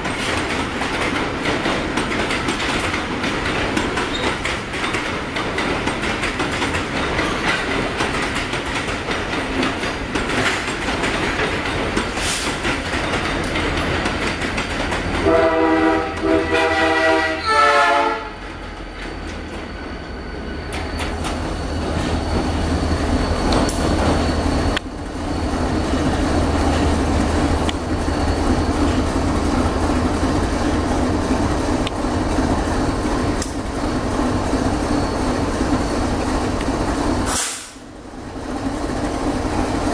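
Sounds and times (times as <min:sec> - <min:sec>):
diesel locomotive engine drone: 0:00.0 - 0:39.9
locomotive air horn: 0:15.2 - 0:18.4.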